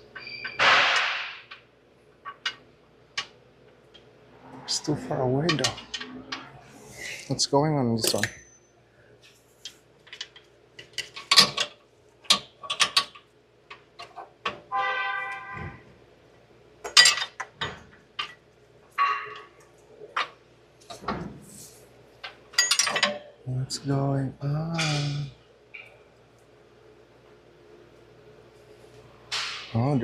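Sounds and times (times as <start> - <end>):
hand tools clinking on metal: 8.0 - 8.6, 22.6 - 23.2.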